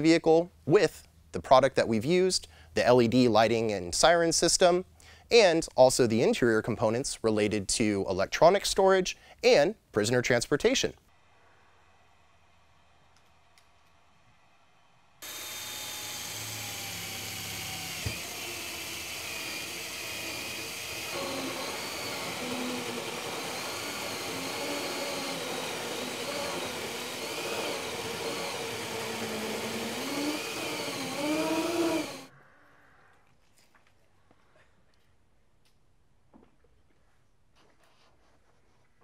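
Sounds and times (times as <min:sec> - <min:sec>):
cordless drill whining: 0:15.2 - 0:32.3.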